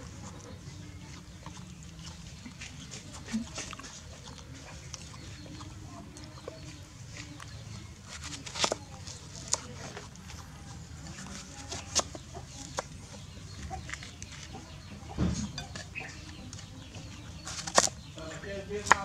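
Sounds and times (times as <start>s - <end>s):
knife slicing watermelon: 2.4s - 10.4s, 17.4s - 18.0s, 18.8s - 19.0s.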